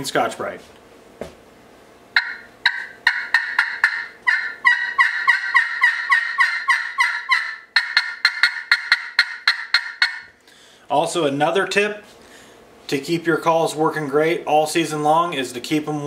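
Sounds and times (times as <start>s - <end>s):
turkey call yelps: 2.2s - 10.3s.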